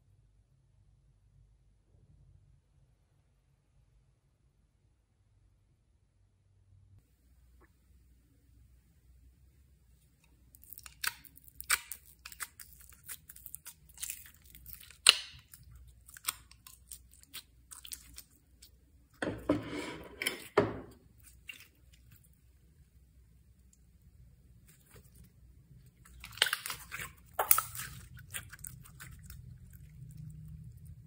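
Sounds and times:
containers crackling and clicking: 26.0s - 29.1s.

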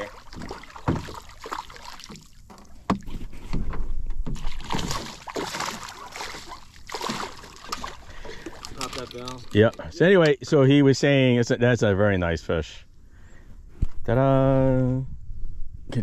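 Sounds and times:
fish splashing at water surface: 0.0s - 2.4s, 4.4s - 9.0s.

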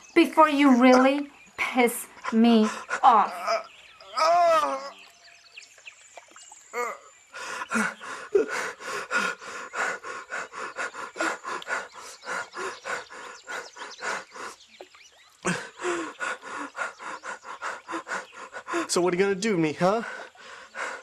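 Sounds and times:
man panting hard: 7.3s - 14.7s, 15.5s - 19.2s, 19.8s - 21.0s.

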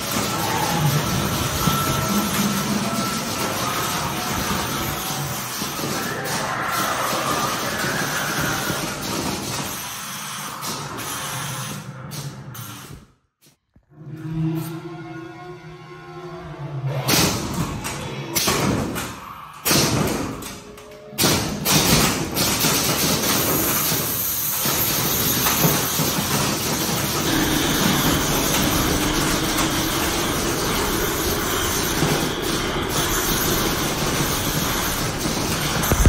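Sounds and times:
horror sound effects: 0.0s - 12.5s, 13.8s - 21.4s, 24.2s - 36.0s.

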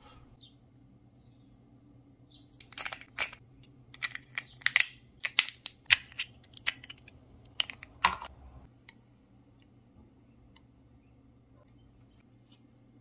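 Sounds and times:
plastic battery pack clicks and rattles: 2.6s - 8.3s.

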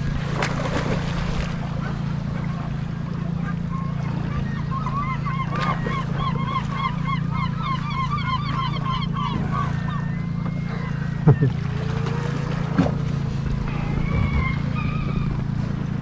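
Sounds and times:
boat engine idling: 0.0s - 16.0s
flock of birds honking: 3.4s - 12.2s, 13.6s - 15.6s.

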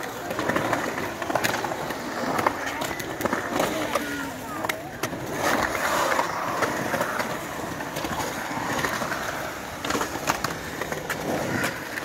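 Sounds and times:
skateboard clacks: 0.0s - 12.0s
skateboard wheels rolling on concrete: 0.0s - 12.0s.

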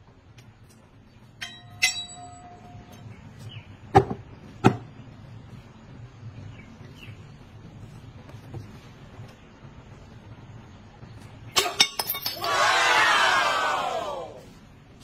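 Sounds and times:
sticks clinking: 1.4s - 3.0s, 11.6s - 12.6s.

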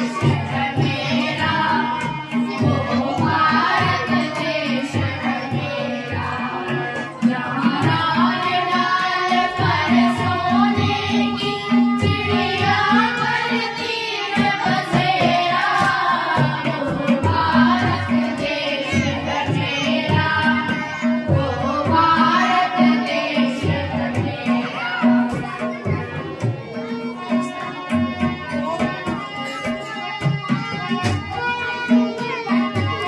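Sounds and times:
children singing: 0.0s - 33.0s
harmonium: 0.0s - 33.0s
tabla beat: 0.0s - 33.0s.

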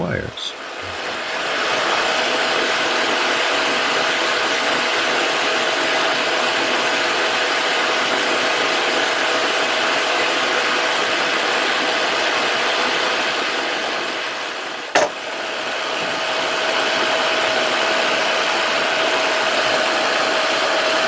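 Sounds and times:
fan-like rushing noise: 0.5s - 21.0s.

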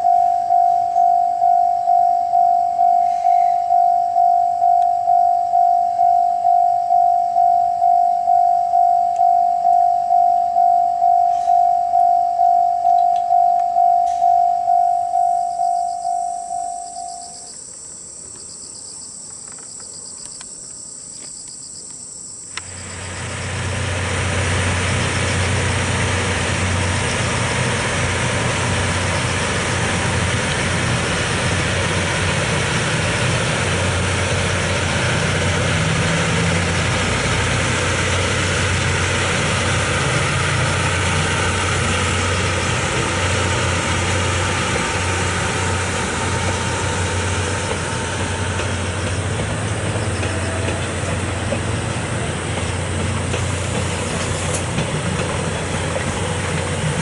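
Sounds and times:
insects chirping: 0.0s - 23.7s, 48.9s - 51.1s
electric train passing: 0.0s - 57.0s
train wheels rumbling on rails: 22.5s - 57.0s.

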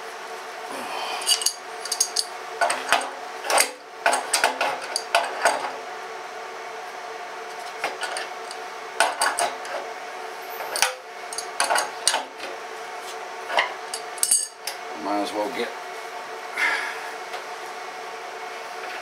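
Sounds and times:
wrench clinking on metal: 1.2s - 2.3s, 10.8s - 11.9s, 13.9s - 14.6s.

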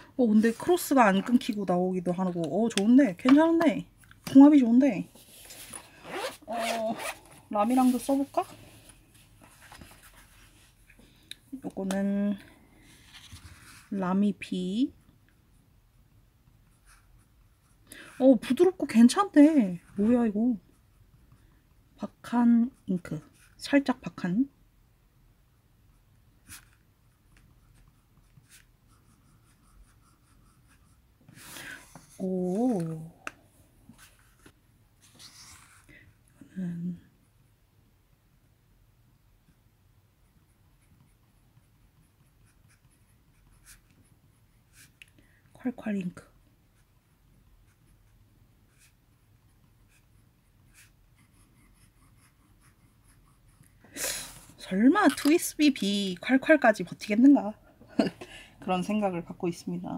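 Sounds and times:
fountain pen scratching on paper: 26.4s - 31.0s, 40.2s - 44.9s, 47.7s - 53.7s.

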